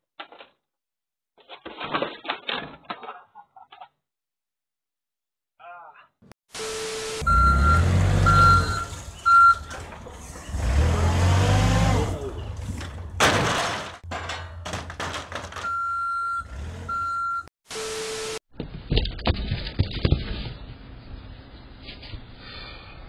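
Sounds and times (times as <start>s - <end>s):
reversing alarm beeping: 6.6s - 9.7s, 15.6s - 18.4s.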